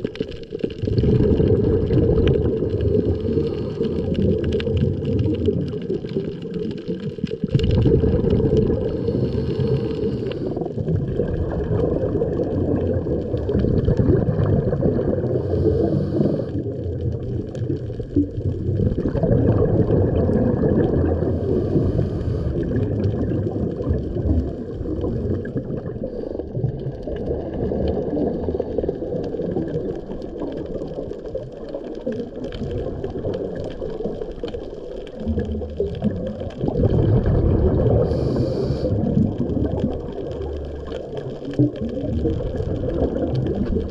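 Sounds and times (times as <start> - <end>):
underwater rumble and gurgling: 0.0 - 43.9.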